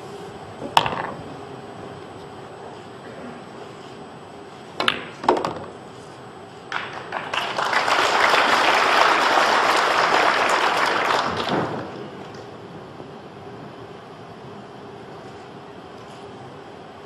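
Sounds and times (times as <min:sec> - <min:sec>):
billiard balls clicking: 0:00.7 - 0:01.3, 0:04.8 - 0:05.8
pool cue striking ball: 0:00.8 - 0:01.3, 0:04.8 - 0:05.8
audience applause: 0:06.7 - 0:12.0.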